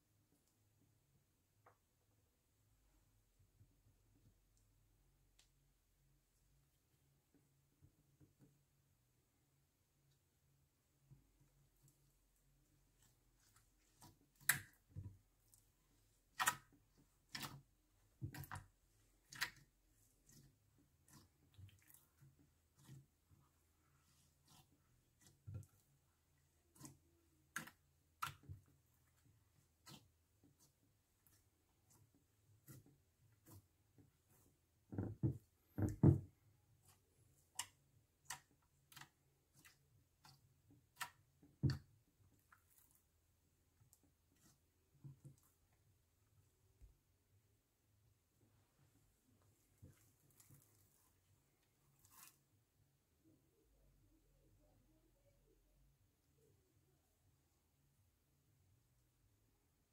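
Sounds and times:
slime squishing: 11.7s - 46.1s
slime clicking and popping: 16.3s - 16.7s.

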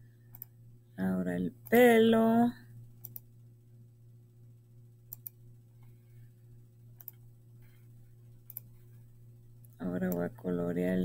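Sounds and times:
low steady hum: 0.0s - 11.0s
computer mouse clicks: 0.3s - 0.5s, 3.0s - 3.3s, 5.1s - 6.0s, 7.0s - 7.8s, 8.4s - 9.0s.

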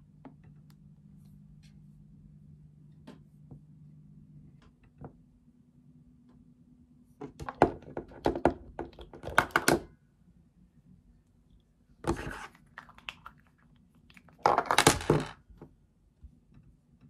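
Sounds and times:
plastic case clicks and knocks: 7.2s - 9.9s.

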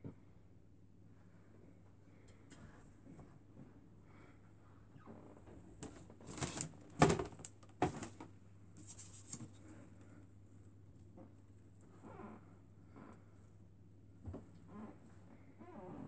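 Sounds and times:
wicker baskets rustling: 5.8s - 9.6s.

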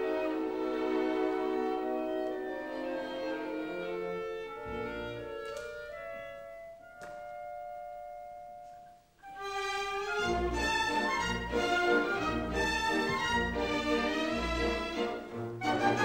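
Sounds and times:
orchestral ballet music: 0.0s - 16.0s.

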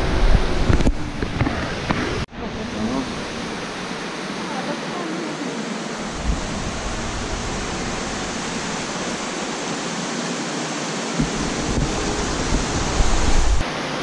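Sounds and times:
steady rushing noise: 0.0s - 14.0s
low rumbles on the microphone: 6.1s - 9.4s, 11.2s - 13.6s.

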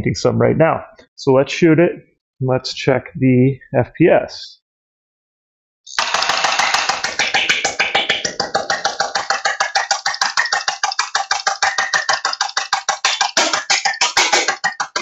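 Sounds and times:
toy blaster firing full-auto: 5.9s - 15.0s.

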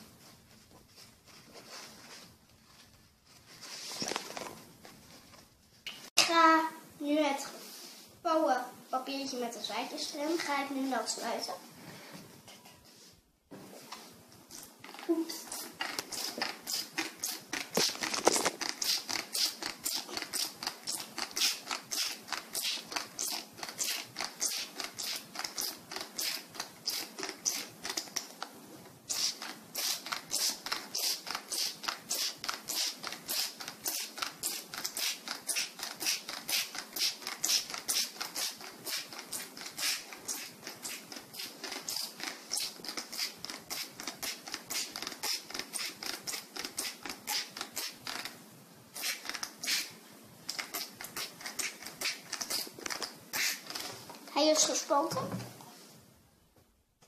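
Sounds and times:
spray bottle hissing mist: 49.0s - 50.0s.

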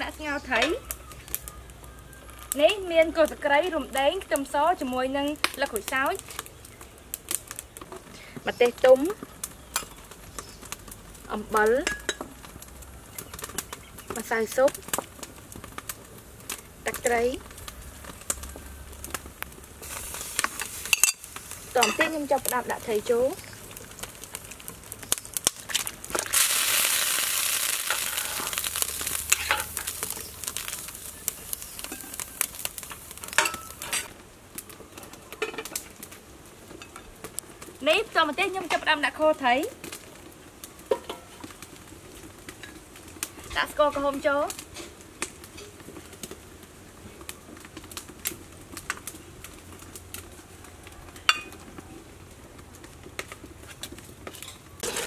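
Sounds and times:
wood fire crackling: 0.0s - 55.0s
faint bird calls: 0.3s - 2.7s
fish splashing into boiling broth: 25.5s - 33.8s
metal ladle scraping pot: 29.3s - 30.0s, 54.4s - 55.0s.

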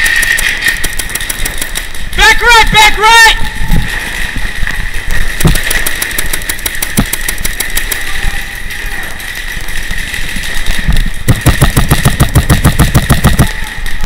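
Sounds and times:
paintball markers firing: 0.0s - 2.0s, 5.4s - 8.1s, 11.2s - 13.7s
heavy low thumps: 11.2s - 13.5s.

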